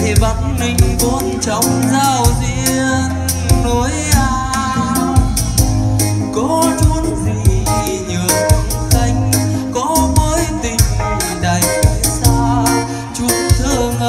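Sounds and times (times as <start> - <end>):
electronic keyboard bass line: 0.0 - 14.0
man singing into a microphone: 0.0 - 14.0
drum beat: 3.5 - 9.3.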